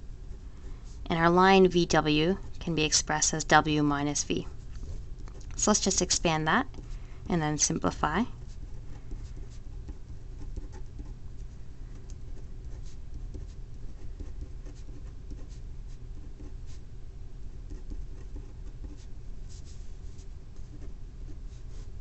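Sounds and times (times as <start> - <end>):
steady low hum: 0.0 - 22.0
pen scratching on paper: 8.4 - 16.8, 17.6 - 21.9.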